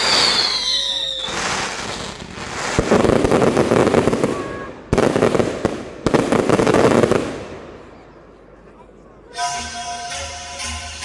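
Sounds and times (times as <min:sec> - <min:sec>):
gliding firework whistle: 0:00.0 - 0:02.2
fireworks crackling and bangs: 0:00.0 - 0:08.0.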